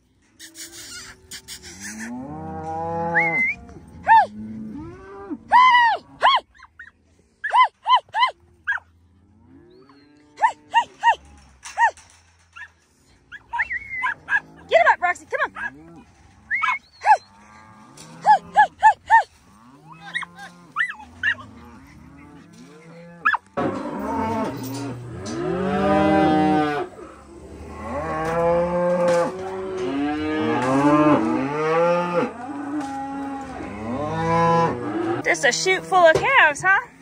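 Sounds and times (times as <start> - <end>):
calves bawling: 0.2 - 36.9
dog yipping: 6.2 - 8.8, 11.8 - 12.0, 13.3 - 14.5, 16.5 - 17.2, 20.0 - 21.5, 23.2 - 23.4.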